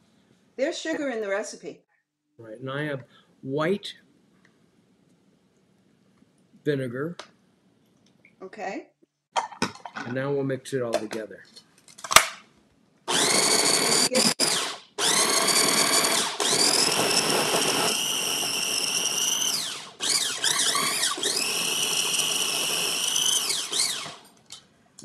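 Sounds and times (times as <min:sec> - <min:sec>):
food processor motor whining: 0:13.1 - 0:24.3.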